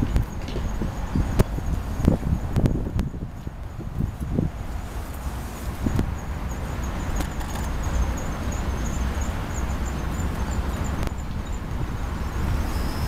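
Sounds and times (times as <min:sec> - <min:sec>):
steady low rumble: 0:00.0 - 0:12.7
insects chirping: 0:04.8 - 0:13.0
high insect trill: 0:04.9 - 0:13.0.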